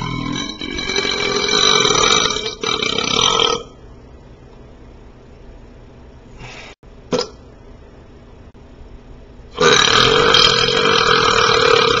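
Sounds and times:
man burping: 0:00.0 - 0:03.7, 0:09.6 - 0:12.0.

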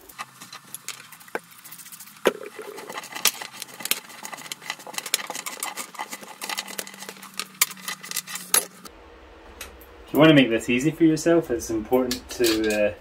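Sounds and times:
bicycle chain clicking: 0:00.0 - 0:08.9.

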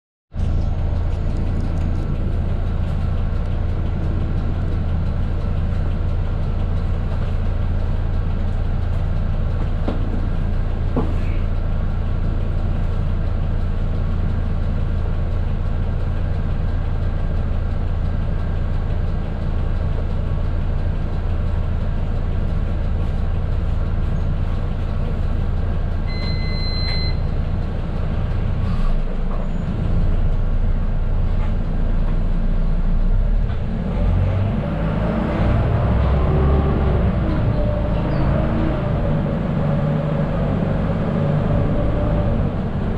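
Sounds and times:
bus diesel engine idling: 0:00.3 - 0:42.9
short high electronic beep: 0:26.1 - 0:27.3.

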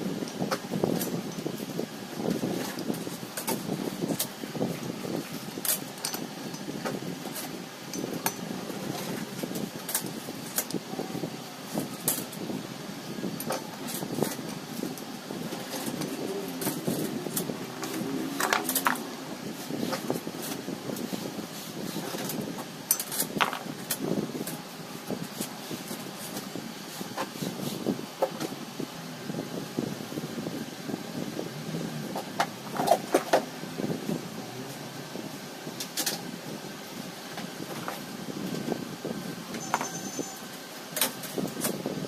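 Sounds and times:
clicks and metallic clinks of tools: 0:15.7 - 0:19.1, 0:22.2 - 0:24.6.

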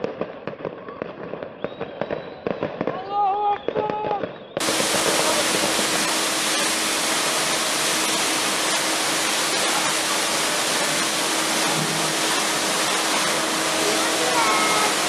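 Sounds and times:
water hose spraying on stone: 0:04.6 - 0:15.0.

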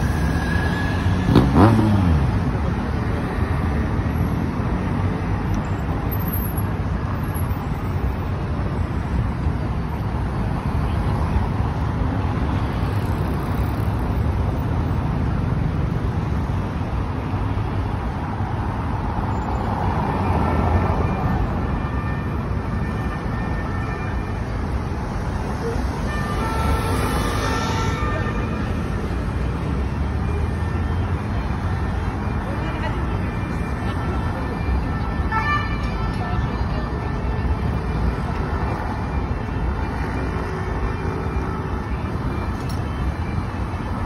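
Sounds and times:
motorbike passing: 0:00.0 - 0:02.5
road traffic: 0:00.0 - 0:44.0.

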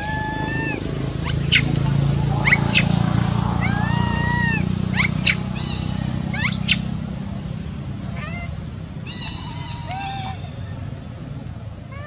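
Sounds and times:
monkey screaming: 0:00.0 - 0:06.9, 0:08.2 - 0:08.5
steady low hum: 0:00.0 - 0:09.1.

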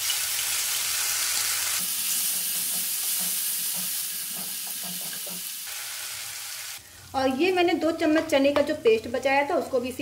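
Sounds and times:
paste sizzling in hot oil: 0:00.0 - 0:07.1.

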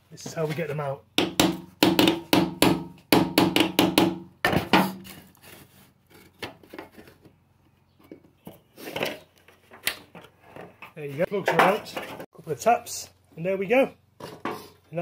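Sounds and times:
handling and scraping: 0:00.0 - 0:01.0, 0:04.5 - 0:12.7, 0:14.2 - 0:15.0
hammer knocking metal punch: 0:01.2 - 0:05.0.

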